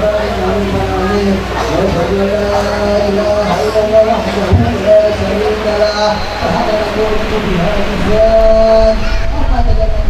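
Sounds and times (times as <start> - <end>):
man chanting melodically: 0.0 - 10.0.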